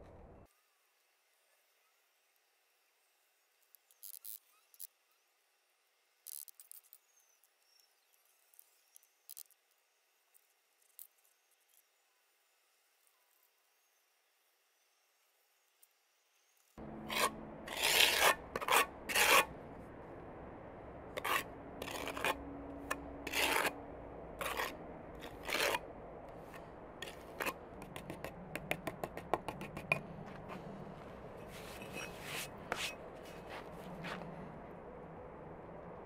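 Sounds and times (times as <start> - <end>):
metal tool scraping brick: 17.0 - 19.5, 21.2 - 23.8, 24.4 - 25.8, 26.4 - 30.6, 31.4 - 33.4.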